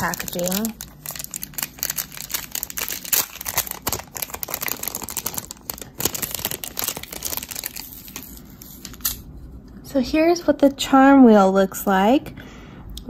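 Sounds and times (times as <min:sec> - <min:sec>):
packaging crinkling and rustling: 0:00.0 - 0:09.3.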